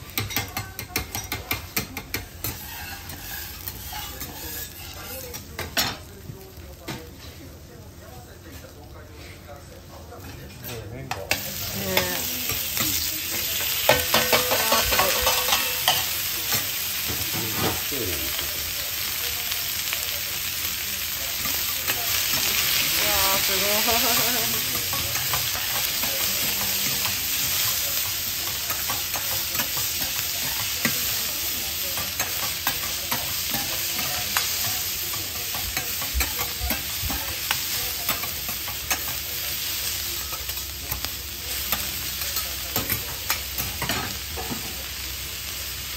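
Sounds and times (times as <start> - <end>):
food sizzling on a griddle: 0.0 - 45.9
metal spatulas scraping griddle: 2.1 - 5.4.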